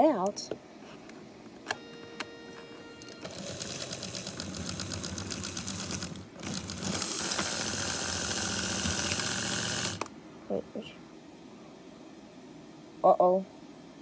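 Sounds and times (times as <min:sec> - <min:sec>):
toy train motor whirring: 0:03.2 - 0:10.1.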